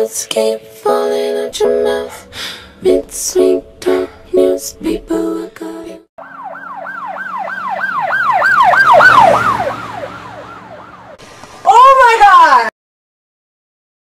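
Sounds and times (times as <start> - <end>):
emergency siren yelping: 6.2 - 11.2.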